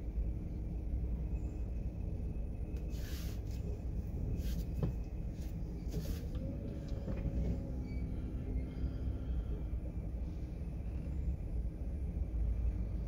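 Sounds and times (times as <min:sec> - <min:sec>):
car cabin rumble: 0:03.5 - 0:13.0.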